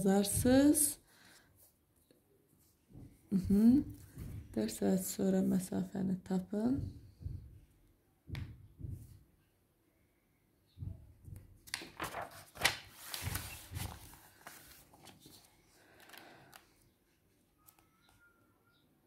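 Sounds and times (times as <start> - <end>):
paper rustling and crinkling: 11.6 - 16.8.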